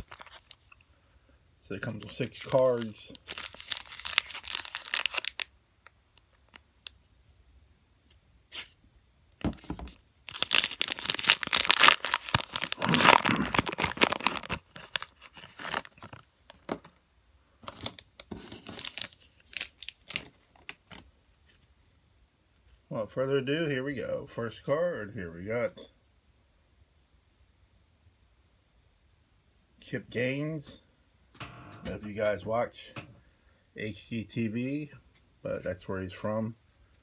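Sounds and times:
foil wrapper tearing and crinkling: 0.0s - 0.7s, 1.8s - 5.5s, 10.3s - 16.3s, 17.6s - 21.0s.

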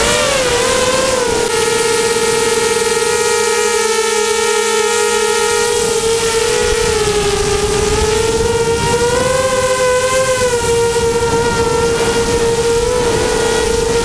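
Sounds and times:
drone motors whining: 0.0s - 14.0s
rush of air noise: 5.4s - 14.0s.

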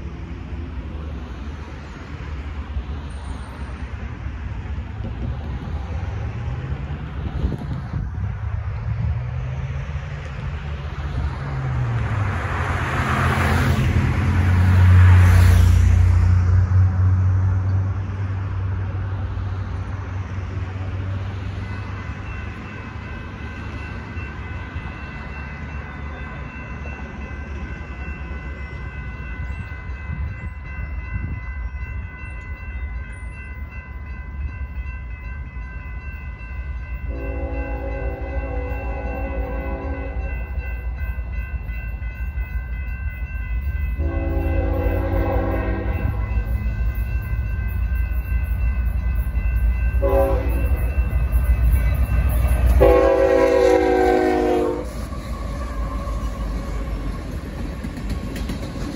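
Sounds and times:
crossing warning bell ringing: 19.8s - 58.9s
locomotive air horn blast: 37.1s - 40.2s, 44.0s - 46.2s, 50.0s - 50.7s, 52.8s - 55.1s.

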